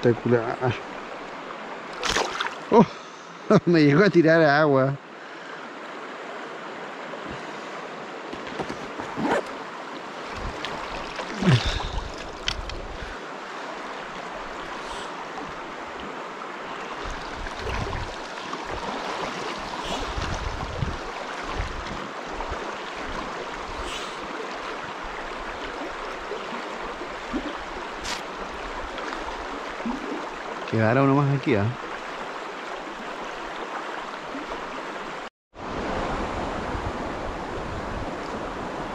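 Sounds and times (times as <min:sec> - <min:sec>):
river running over stones: 0:00.1 - 0:04.9, 0:05.7 - 0:36.7
wind buffeting microphone: 0:17.0 - 0:18.8, 0:19.6 - 0:22.6.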